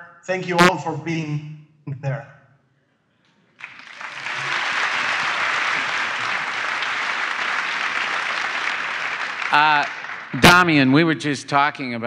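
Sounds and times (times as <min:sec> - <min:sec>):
audience applause: 0:03.6 - 0:11.2.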